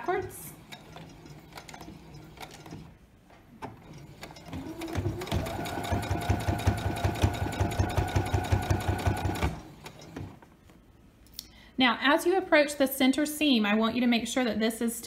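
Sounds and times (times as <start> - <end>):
sewing machine stitching: 0.0 - 3.0, 3.6 - 10.4.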